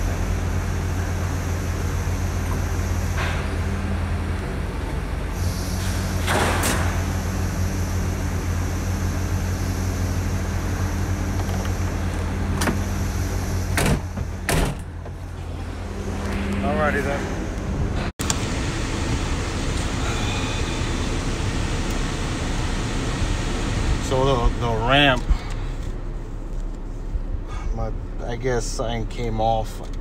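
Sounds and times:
low motor hum: 0.0 - 30.0.

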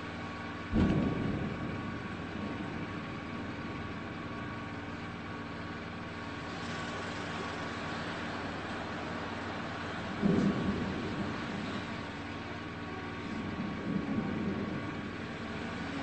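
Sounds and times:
low volcanic rumble: 0.0 - 16.0
volcano explosion boom: 0.6 - 5.9, 9.9 - 16.0.

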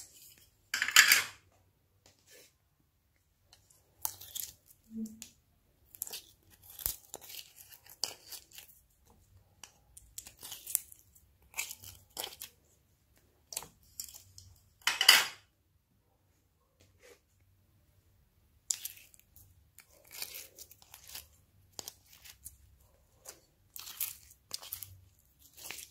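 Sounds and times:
slime sticky crackles: 18.6 - 25.9.

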